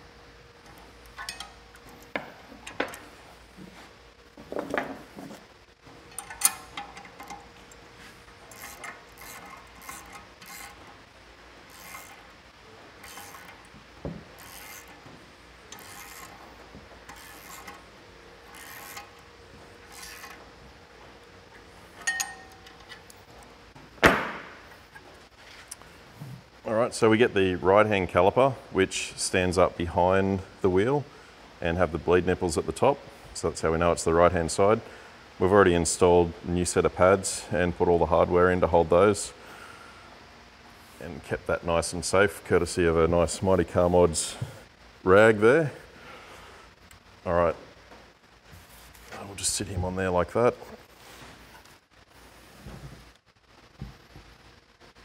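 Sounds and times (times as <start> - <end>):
ratchet wrench clicking: 8.5 - 11.0, 11.7 - 12.3, 13.0 - 13.7, 14.4 - 15.1, 15.7 - 16.4, 17.0 - 17.8, 18.4 - 19.2, 19.9 - 20.4.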